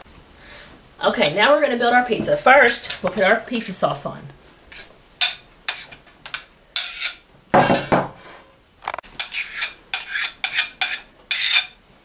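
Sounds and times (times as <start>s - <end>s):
spoon scraping a bowl: 2.6s - 3.7s, 4.7s - 8.5s, 9.1s - 11.8s.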